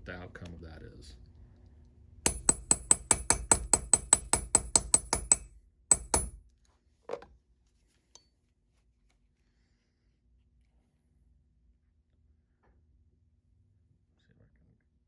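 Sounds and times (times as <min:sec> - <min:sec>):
hammer tapping on metal: 0:02.2 - 0:06.4.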